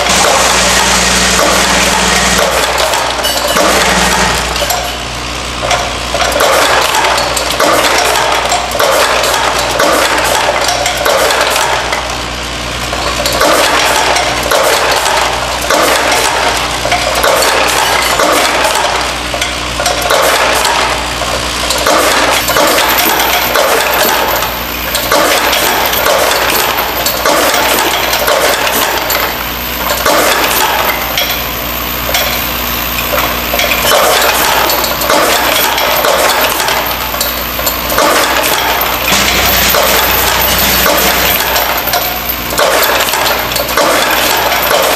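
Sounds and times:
vibratory feeder humming: 0.0 - 6.2, 22.1 - 44.9
brass fittings rattling and clinking: 0.1 - 5.0, 12.9 - 44.9.

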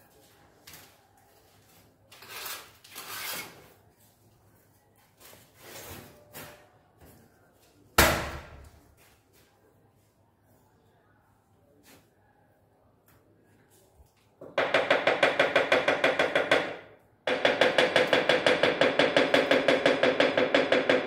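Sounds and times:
ceramic tile knocking on wall: 14.4 - 21.0.

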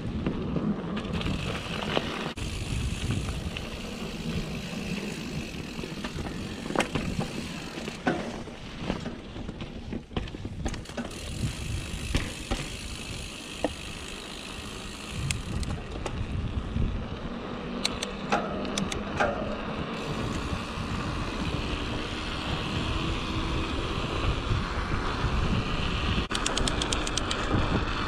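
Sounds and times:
wind rushing over microphone: 0.0 - 8.0, 10.0 - 28.0
tyres rolling over gravel: 0.0 - 15.2
bike clacking and rattling: 0.0 - 16.6, 17.8 - 22.8, 26.3 - 28.0.

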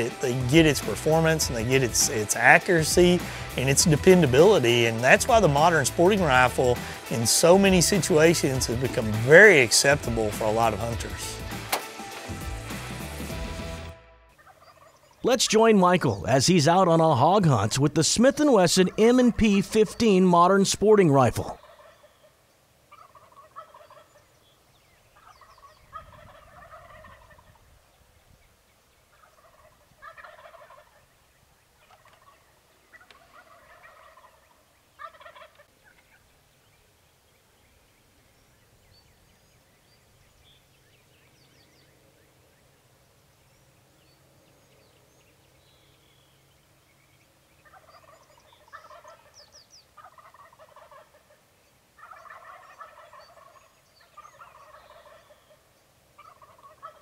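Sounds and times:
turkeys gobbling: 0.0 - 24.6, 25.2 - 27.6, 29.1 - 36.3, 47.4 - 57.0.

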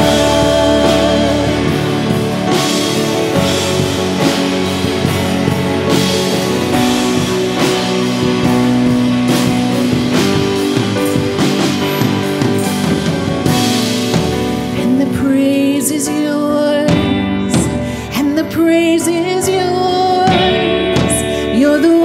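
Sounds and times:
drum kit beat: 0.0 - 15.1
strummed guitars: 0.0 - 22.0.

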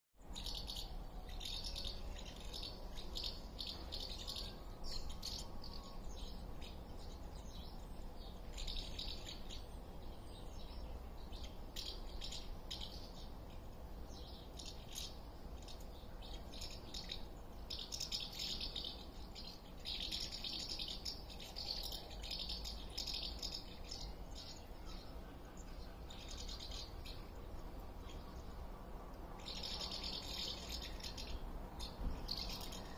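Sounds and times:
birds twittering: 0.2 - 32.9
steady low rumble: 0.2 - 32.9.

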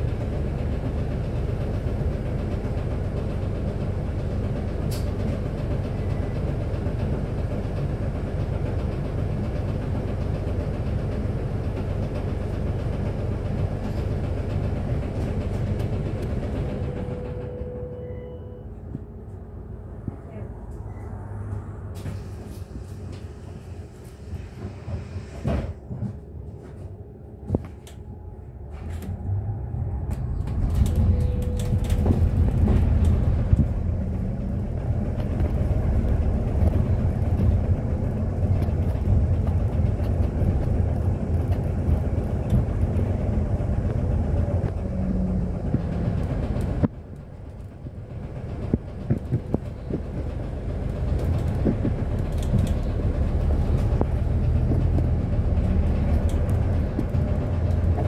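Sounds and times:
bus drivetrain and road rumble: 0.0 - 58.0
rattles and clicks: 30.0 - 58.0.

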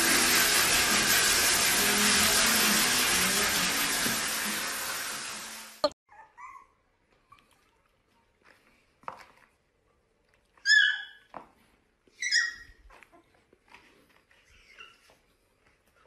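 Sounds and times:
puppy yipping: 6.1 - 7.6, 10.6 - 11.3, 12.1 - 13.4, 14.5 - 15.2.

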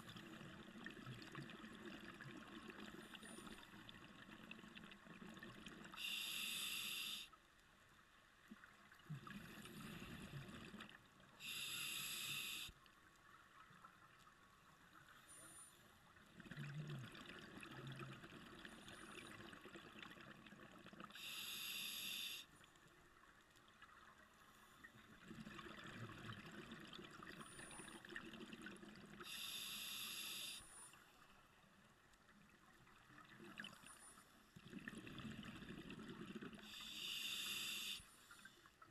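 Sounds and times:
regulator inhalation hiss: 6.0 - 7.4, 11.4 - 12.8, 21.2 - 22.5, 29.2 - 30.8, 36.6 - 38.3.

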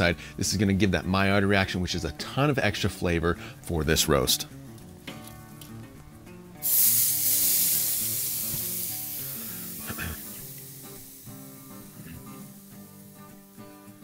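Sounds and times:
meat sizzling on a charcoal grill: 6.6 - 14.0.

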